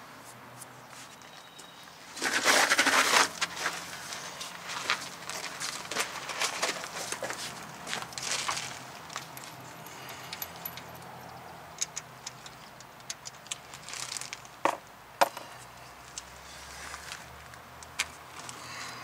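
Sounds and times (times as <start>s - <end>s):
metallic clicks and clinks: 8.1s - 14.6s.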